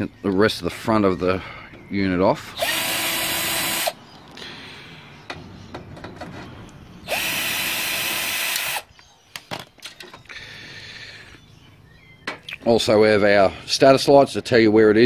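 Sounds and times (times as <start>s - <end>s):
cordless drill running: 2.6s - 4.0s, 7.0s - 8.8s
sharp knocks and clicks: 5.2s - 6.8s.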